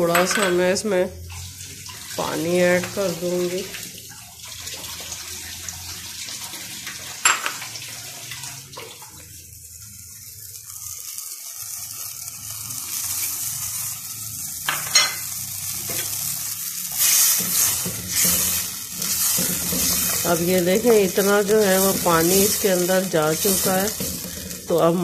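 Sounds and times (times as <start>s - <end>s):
pot hissing and sizzling: 0.0s - 25.0s
glass clinks: 14.7s - 15.2s
wooden spoon stirring pot: 17.0s - 25.0s.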